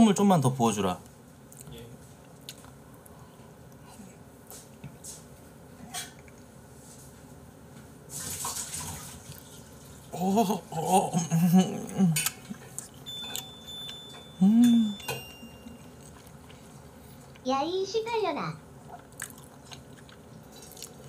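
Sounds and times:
man humming while chewing: 10.1s - 13.4s, 14.3s - 15.2s.

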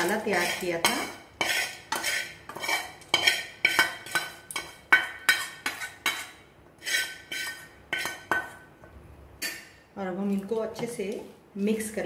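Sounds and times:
spoon scraping metal pan: 0.0s - 8.6s.

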